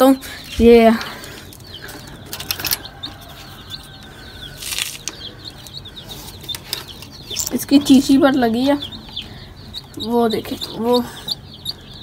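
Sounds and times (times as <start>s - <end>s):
chicks peeping: 0.1s - 12.0s
rustling: 4.5s - 5.2s.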